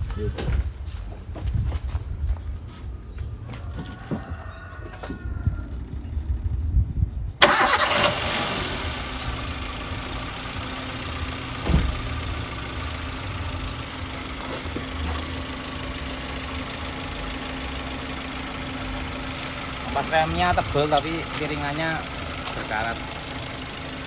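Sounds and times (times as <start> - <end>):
car engine idling roughly: 7.4 - 24.0
thump: 11.6 - 12.1.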